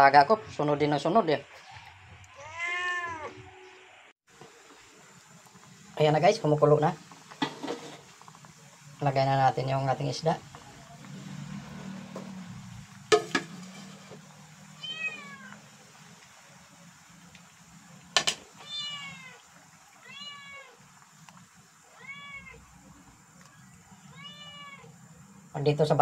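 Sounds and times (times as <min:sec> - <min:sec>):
cat meowing: 0:02.3 - 0:03.5, 0:14.7 - 0:15.6, 0:18.6 - 0:19.4, 0:20.0 - 0:20.8, 0:21.9 - 0:22.7, 0:24.0 - 0:25.0.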